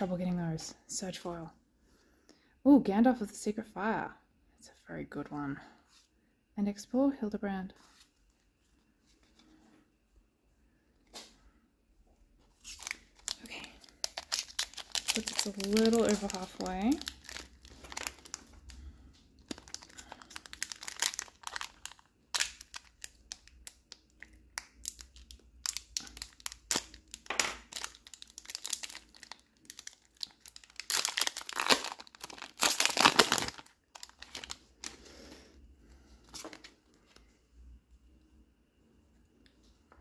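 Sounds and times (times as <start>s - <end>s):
foil wrapper crinkling and tearing: 12.6s - 35.0s.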